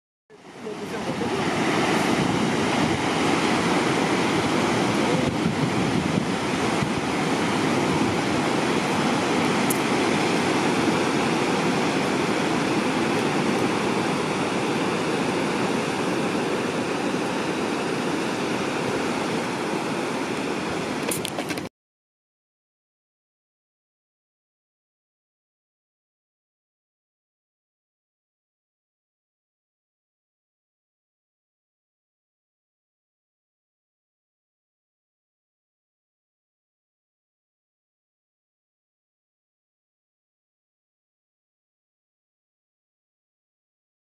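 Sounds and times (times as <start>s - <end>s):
ocean surf breaking on shore: 0.3s - 21.7s.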